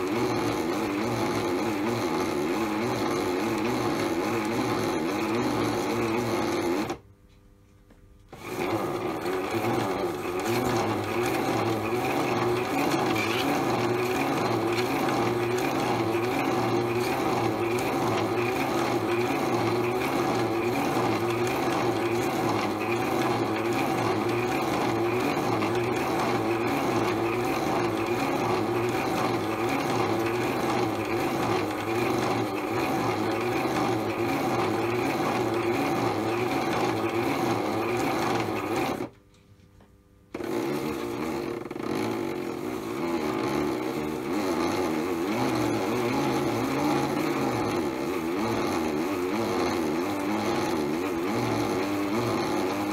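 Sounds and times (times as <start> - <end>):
toy washing machine motor whirring: 0.0 - 7.0, 8.3 - 39.1, 40.3 - 52.9
water churning in drum: 8.5 - 39.1.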